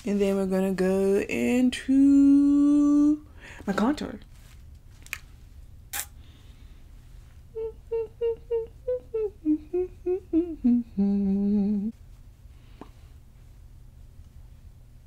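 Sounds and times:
woman humming a tune: 2.0 - 3.2, 7.5 - 12.0.

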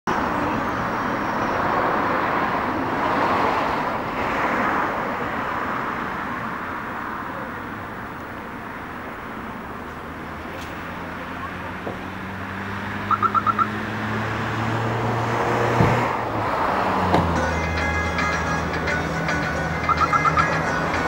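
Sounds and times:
road traffic rushing: 0.0 - 21.0.

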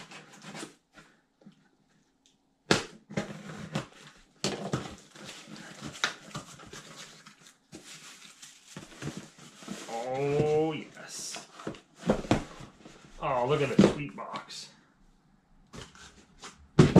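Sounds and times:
cardboard scraping and rustling: 0.0 - 1.1, 3.1 - 14.1, 15.7 - 16.9.

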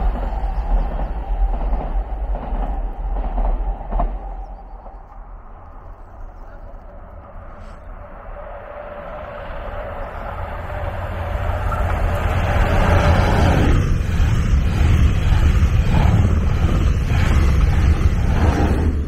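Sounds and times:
train passing: 0.0 - 19.0
wheels clacking on rail: 9.6 - 19.0.

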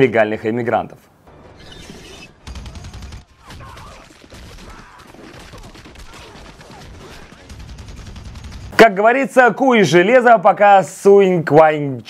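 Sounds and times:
rapid gunfire: 2.4 - 9.0.

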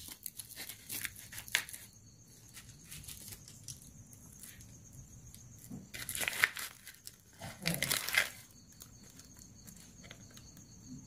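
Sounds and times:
plastic packaging crinkling: 5.9 - 10.4.

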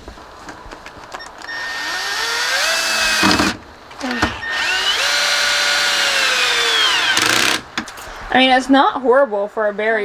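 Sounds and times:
cordless drill motor whine: 1.2 - 7.6.

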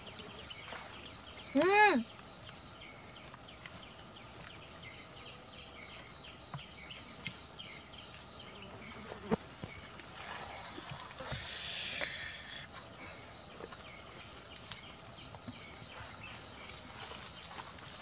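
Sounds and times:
high-pitched insect drone: 11.2 - 12.8.

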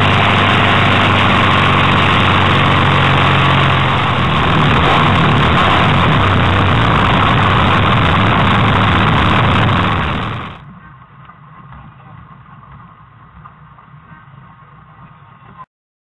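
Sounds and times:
vehicle engine and wind noise: 0.0 - 10.8.

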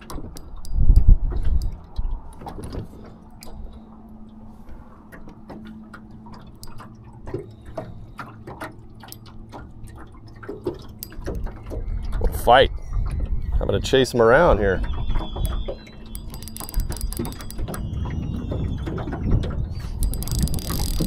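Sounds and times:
water splashes and drips: 5.1 - 13.3
light clicks: 15.4 - 17.8, 20.0 - 21.0.

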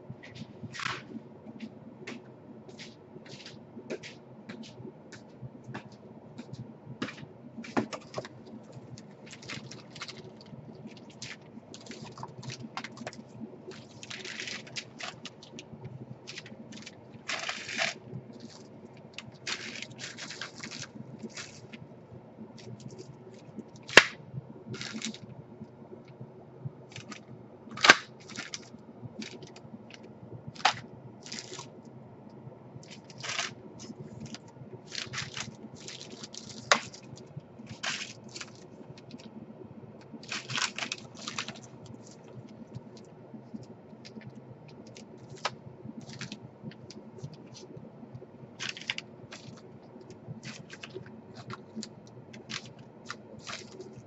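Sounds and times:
low steady hum: 0.0 - 54.0
plastic bags crinkling: 7.6 - 21.8, 24.8 - 25.2, 26.9 - 29.6, 30.6 - 31.8, 32.8 - 39.3, 40.2 - 43.0, 44.0 - 47.7, 48.6 - 54.0.

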